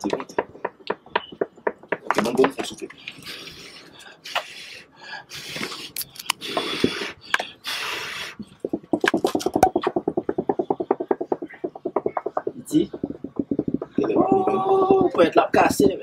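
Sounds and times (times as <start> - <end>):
plastic plate flapping: 8.4 - 16.0.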